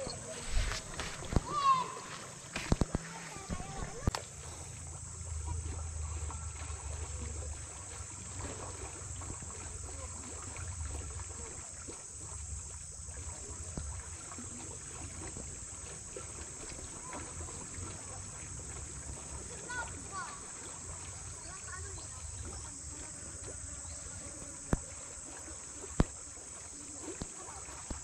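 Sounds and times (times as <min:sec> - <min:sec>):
insects droning: 0:00.0 - 0:28.0
faint ticks: 0:23.4 - 0:25.2, 0:27.1 - 0:28.0.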